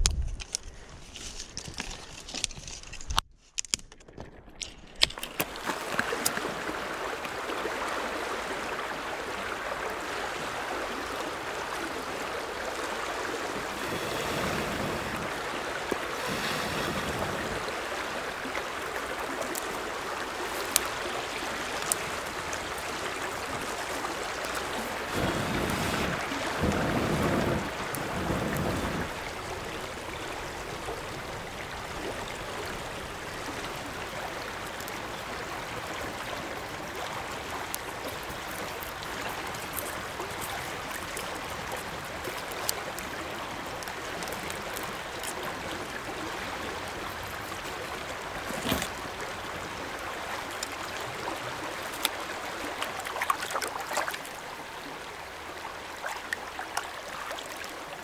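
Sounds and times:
shallow creek rushing: 0:05.2 - 0:58.0
breath blown onto fire: 0:13.7 - 0:17.7, 0:25.1 - 0:29.2.

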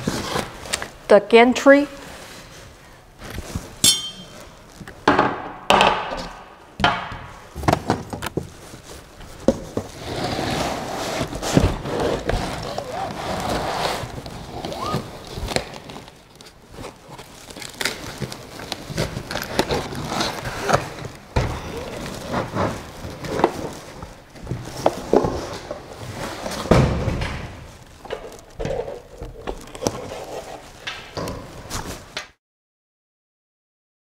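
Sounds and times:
packaging rustling: 0:11.1 - 0:26.7, 0:27.6 - 0:30.8.

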